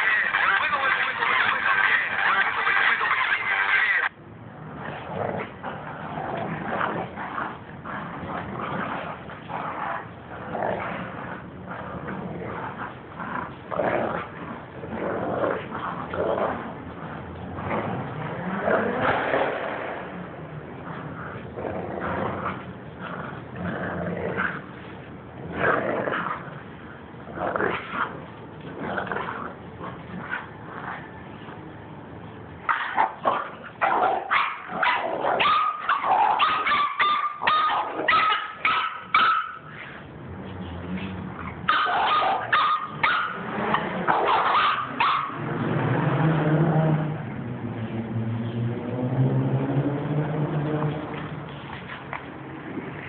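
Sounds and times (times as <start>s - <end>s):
dogs growling: 0.0s - 31.7s, 32.7s - 47.2s
small dog barking: 32.7s - 39.7s, 41.7s - 43.4s, 44.1s - 45.4s.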